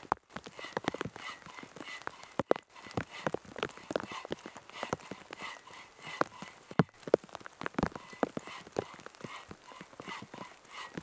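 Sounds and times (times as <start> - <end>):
rain dripping onto leaves: 0.0 - 11.0.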